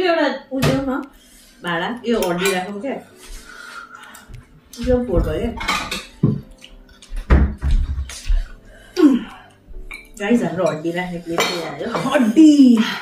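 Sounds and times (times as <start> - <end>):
people talking: 0.0 - 3.1, 4.8 - 5.8, 9.0 - 9.3, 10.2 - 13.0
cutlery clinking on ceramic bowls: 2.1 - 2.8, 5.5 - 7.1, 9.9 - 12.5.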